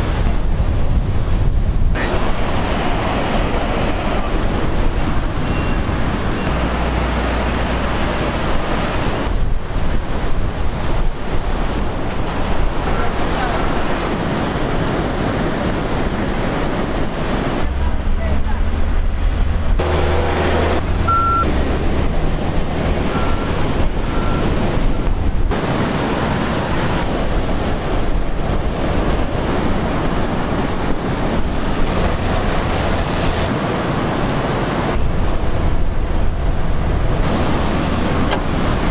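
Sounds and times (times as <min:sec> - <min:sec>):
excavator and truck engines: 0:00.0 - 0:38.9
surf: 0:00.0 - 0:38.9
wind buffeting microphone: 0:00.0 - 0:38.9.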